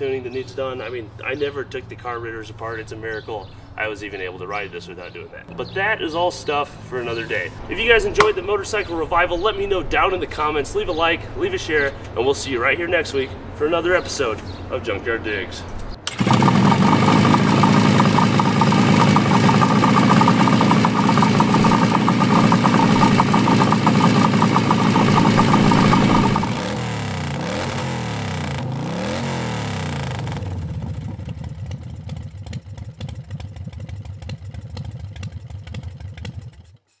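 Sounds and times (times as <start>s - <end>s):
two-stroke engine running: 16.1s - 36.9s.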